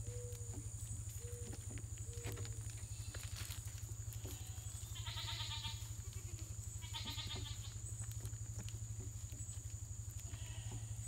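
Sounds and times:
goat bleating: 4.1s - 7.8s, 10.2s - 11.0s.

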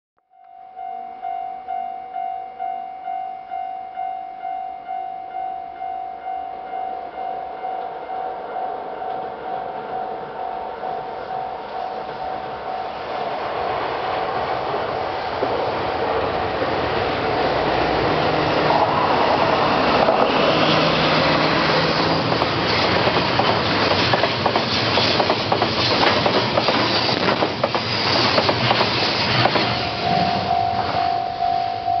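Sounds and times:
level crossing warning bell: 0.3s - 13.3s, 29.5s - 32.0s
train rumbling past: 6.2s - 32.0s.

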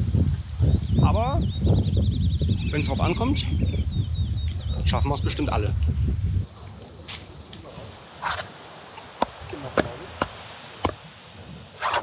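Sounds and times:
insects chirring: 0.0s - 12.0s
short rustle: 7.1s - 12.0s.

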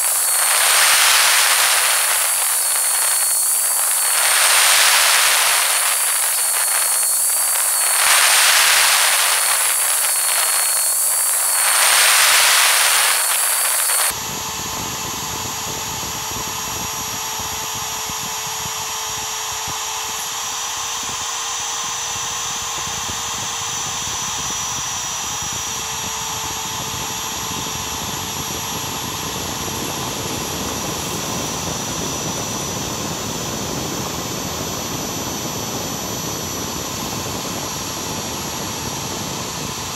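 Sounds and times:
high hiss: 0.0s - 14.1s
spindle whine cutting steel: 0.0s - 39.9s.

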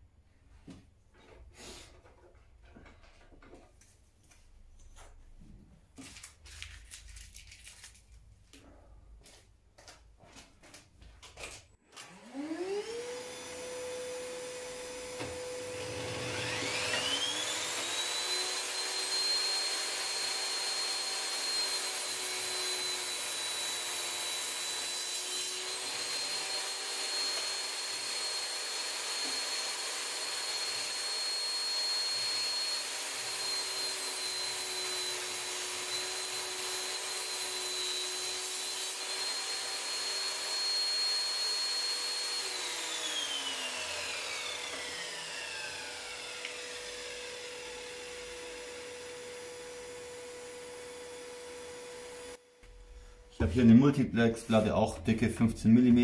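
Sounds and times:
vacuum motor whine: 11.8s - 52.4s.

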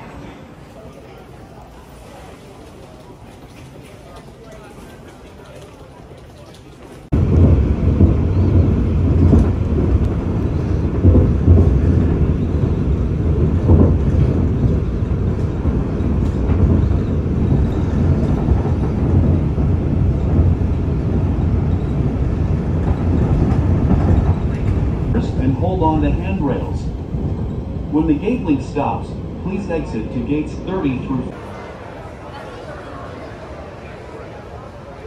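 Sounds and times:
train rumbling at speed: 7.0s - 35.0s.

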